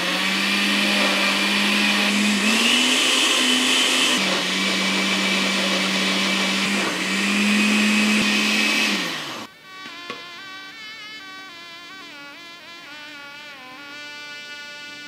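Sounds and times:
blender motor grinding: 0.0 - 9.5.

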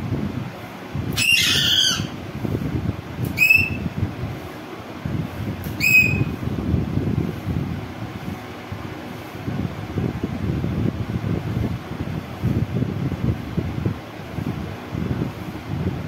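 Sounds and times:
parakeet squawking: 1.2 - 2.2, 3.4 - 3.8, 5.8 - 6.3.

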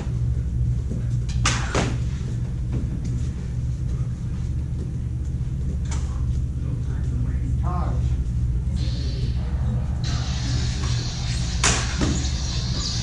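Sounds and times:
lightsaber humming: 8.0 - 13.0
lightsaber blades clashing: 8.8 - 13.0.

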